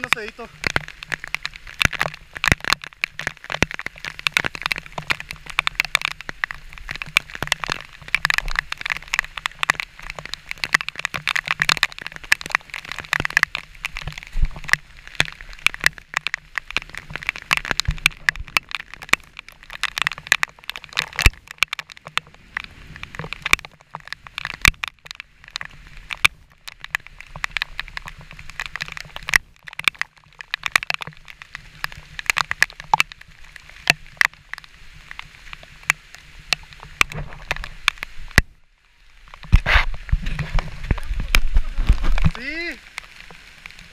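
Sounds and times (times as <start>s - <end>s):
falling water hiss: 0.0s - 20.3s, 31.2s - 43.9s.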